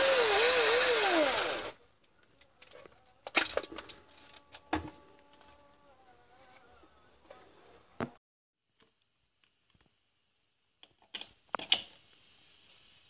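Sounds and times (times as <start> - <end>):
drill motor spinning down: 0.0 - 1.8.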